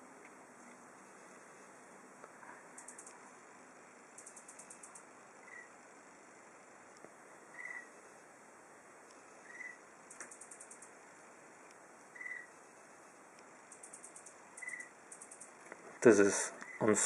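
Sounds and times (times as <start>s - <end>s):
rapid very high ticks: 2.7s - 3.2s, 4.1s - 5.7s, 9.0s - 11.0s, 13.3s - 15.8s
high animal chirp: 4.2s - 5.7s, 7.5s - 7.9s, 9.4s - 9.8s, 12.2s - 12.5s, 13.8s - 15.6s.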